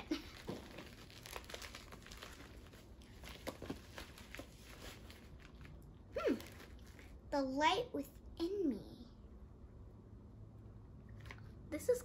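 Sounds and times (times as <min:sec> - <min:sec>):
plastic envelope crinkling: 0:00.0 - 0:07.3.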